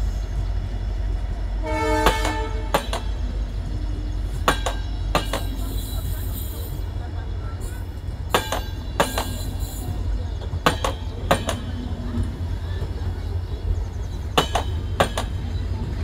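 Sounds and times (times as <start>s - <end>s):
train coaches rumbling past: 0.0s - 16.0s
wheels clicking over rail: 8.3s - 16.0s.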